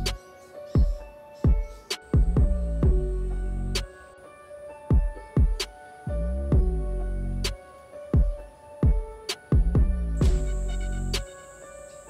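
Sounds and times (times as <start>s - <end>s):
background music with drum beat: 0.8s - 3.1s, 4.9s - 5.8s, 6.5s - 6.8s, 8.2s - 11.4s.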